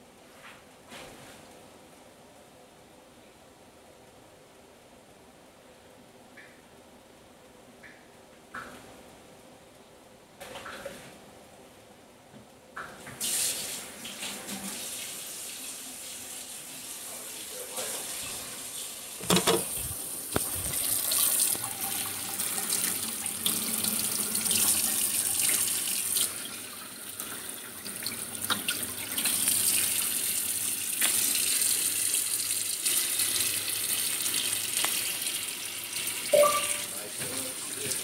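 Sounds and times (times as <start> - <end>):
faucet water running into sink: 17.8 - 38.0.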